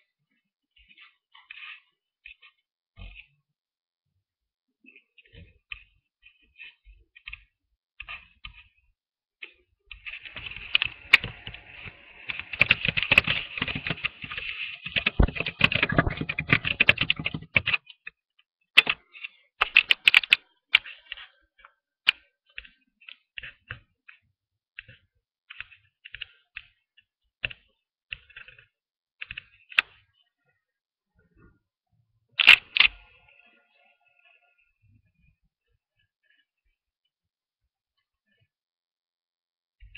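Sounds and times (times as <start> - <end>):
computer keyboard clicking: 10.4 - 17.9, 19.6 - 20.9, 32.4 - 33.0.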